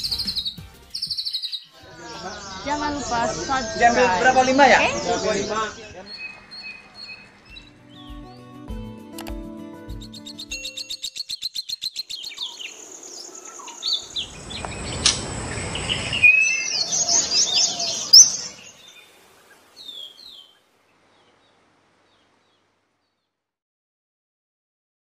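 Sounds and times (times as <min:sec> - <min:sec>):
songbird chirping and whistling: 0:00.0 - 0:08.6, 0:09.9 - 0:19.0.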